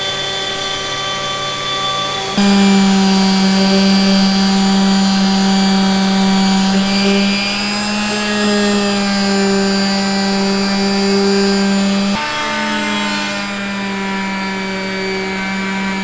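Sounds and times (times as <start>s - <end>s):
router spindle whine: 0.0s - 16.0s
orbital sander on wood: 0.1s - 16.0s.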